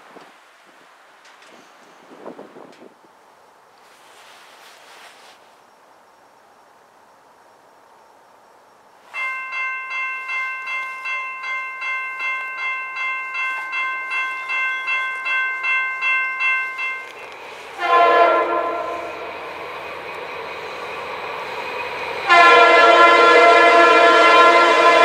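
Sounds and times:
train rumbling: 0:07.0 - 0:25.0
crossing bell ringing: 0:09.1 - 0:25.0
locomotive air horn blast: 0:17.5 - 0:19.5, 0:22.2 - 0:25.0.

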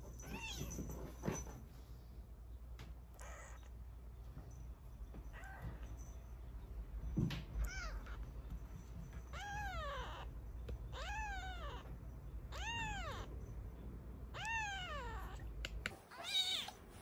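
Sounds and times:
kitten mewing: 0:03.1 - 0:03.7, 0:14.3 - 0:16.8.

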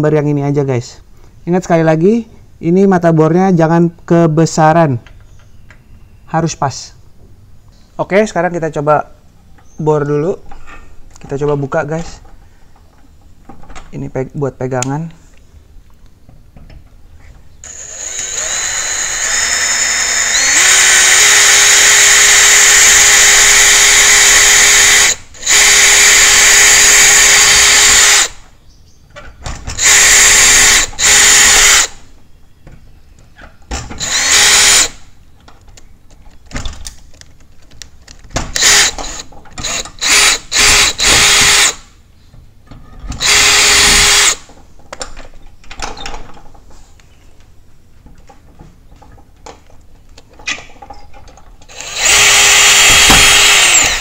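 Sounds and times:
cordless drill motor whine: 0:17.6 - 0:28.4, 0:29.8 - 0:32.0, 0:34.0 - 0:35.0, 0:38.6 - 0:41.8, 0:43.2 - 0:44.4, 0:51.7 - 0:54.0.

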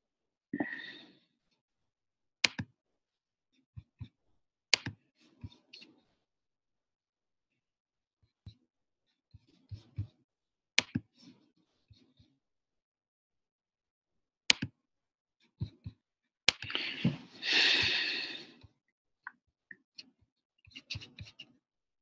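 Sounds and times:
mouse and keyboard clicks: 0:02.4 - 0:02.7, 0:04.8 - 0:05.0, 0:10.8 - 0:11.0.

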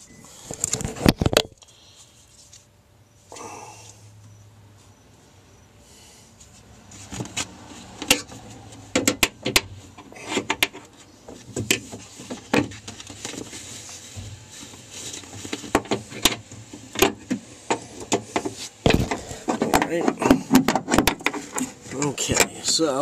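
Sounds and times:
knocks clicks and scraping: 0:06.9 - 0:22.8.

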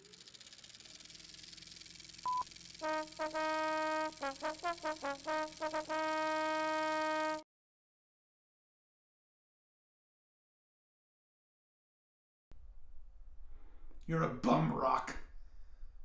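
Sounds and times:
short high beep: 0:02.3 - 0:02.5
brass fanfare: 0:02.8 - 0:07.4.

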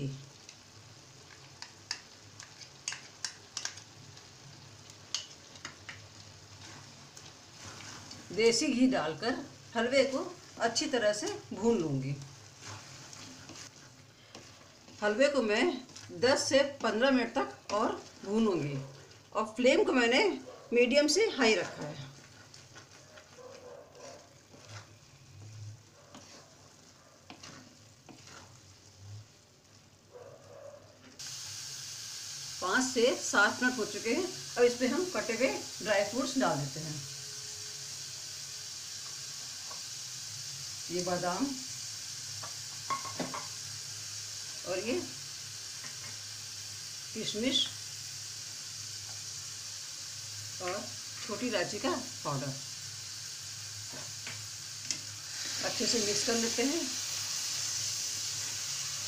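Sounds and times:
faint sizzle: 0:00.0 - 0:59.0
spatula clicking on pan: 0:01.6 - 0:03.8
spatula scraping a pan: 0:06.5 - 0:08.4, 0:12.4 - 0:19.2, 0:21.4 - 0:29.0
spoon tapping metal pan: 0:42.9 - 0:43.5.

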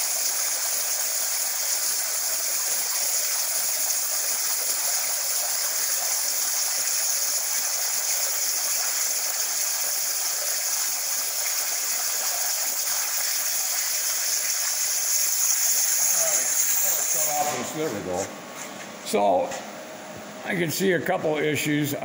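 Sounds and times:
plasma torch hissing: 0:14.7 - 0:17.8.

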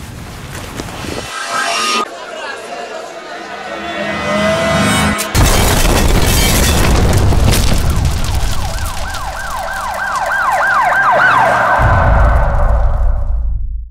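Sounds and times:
debris falling: 0:05.3 - 0:11.1
explosion blast and rumble: 0:05.4 - 0:10.0, 0:11.8 - 0:13.9
emergency vehicle siren: 0:07.7 - 0:13.0.

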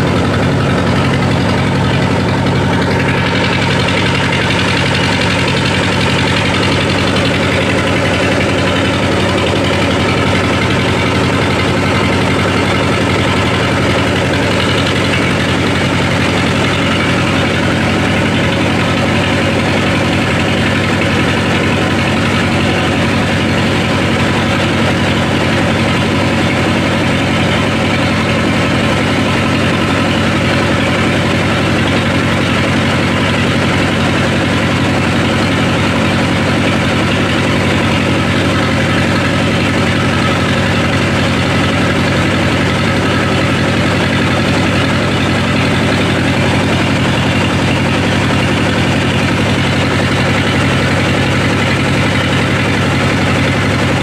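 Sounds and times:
diesel engine and huller drone: 0:00.0 - 0:54.0.

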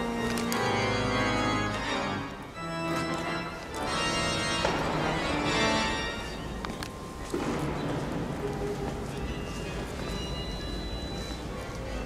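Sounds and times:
organ playing slow chords: 0:00.0 - 0:06.7.

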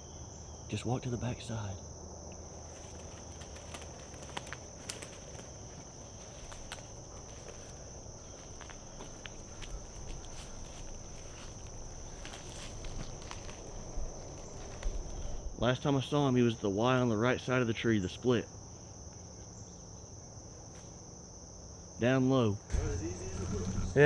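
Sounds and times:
twigs snapping: 0:02.3 - 0:05.5, 0:06.3 - 0:07.6, 0:08.6 - 0:15.2
footsteps crunching dry leaves: 0:02.5 - 0:15.4
high-pitched insect drone: 0:22.0 - 0:24.0.

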